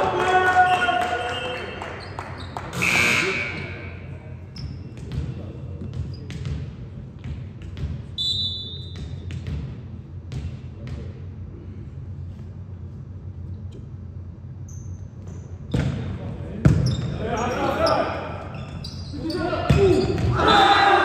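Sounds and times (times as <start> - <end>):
steady low hum: 2.5 - 21.0
volleyball thumps with echo: 4.9 - 8.2, 8.9 - 11.2, 19.6 - 20.6.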